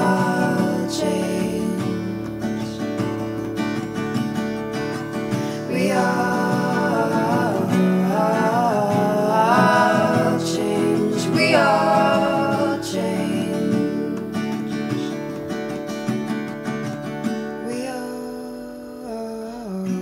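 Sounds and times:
woman singing: 0.0 - 3.1, 5.4 - 15.3, 17.6 - 20.0
acoustic guitar strumming: 0.0 - 20.0.

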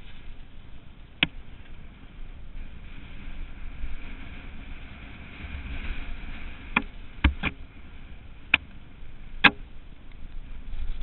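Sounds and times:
wind and tyre noise: 0.0 - 11.0.

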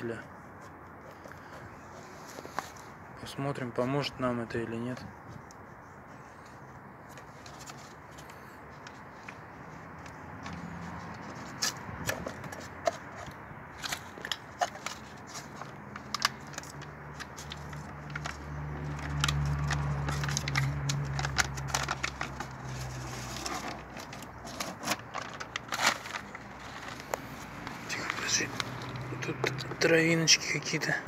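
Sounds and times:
paper backing crackling: 13.8 - 29.2.

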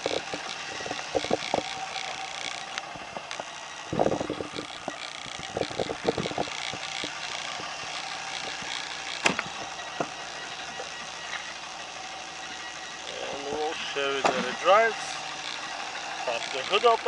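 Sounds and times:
clattering rattles: 0.0 - 10.9
steady background hum: 0.0 - 17.0.

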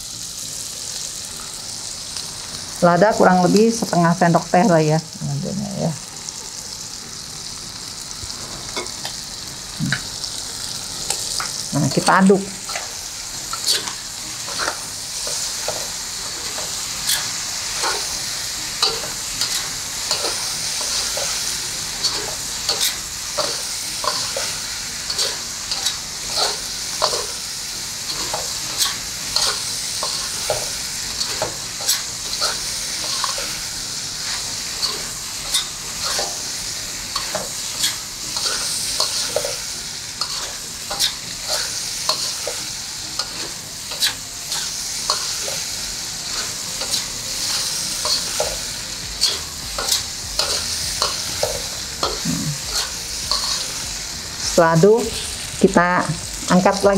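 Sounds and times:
pork sizzling in a pan: 0.0 - 56.9
spatula scraping pan: 49.2 - 53.8.

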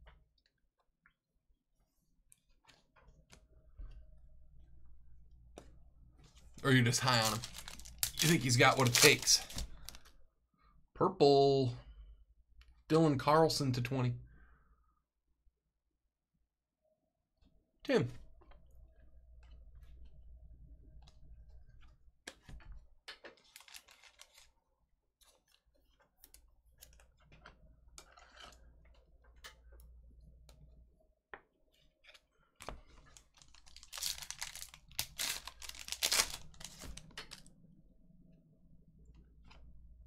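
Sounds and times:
foil pack tearing and crinkling: 7.2 - 10.0, 23.4 - 24.5, 33.3 - 37.4.

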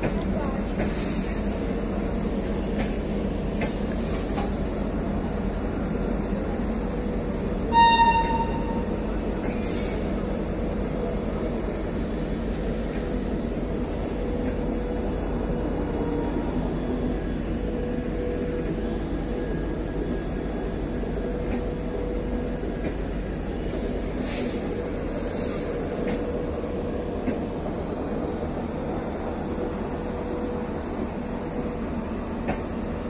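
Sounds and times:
train coaches rumbling past: 0.0 - 33.0.

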